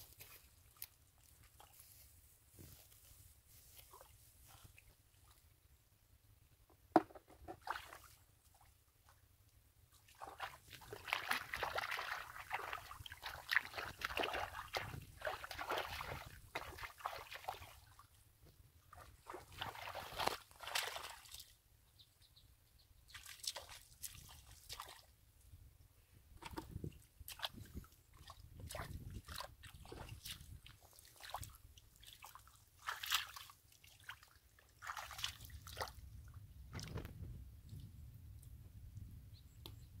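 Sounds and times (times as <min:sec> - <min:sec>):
muddy water sloshing: 0:00.0 - 0:05.5, 0:07.0 - 0:09.2, 0:09.8 - 0:18.2, 0:18.8 - 0:21.6, 0:23.1 - 0:25.2, 0:26.4 - 0:37.1.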